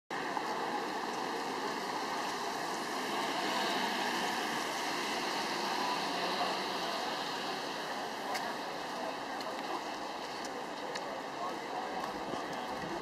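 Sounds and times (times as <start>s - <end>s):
tyres hissing on wet road: 0.2s - 10.5s.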